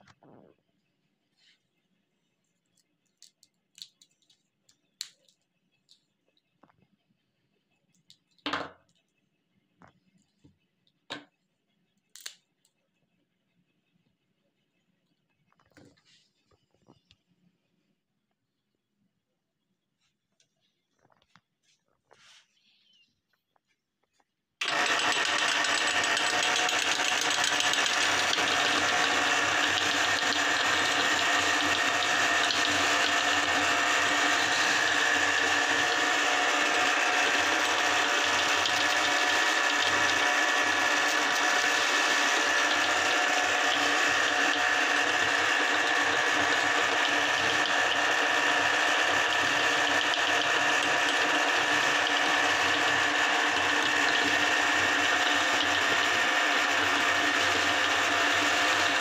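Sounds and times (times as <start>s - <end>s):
meat grinder motor whine: 24.6s - 59.0s.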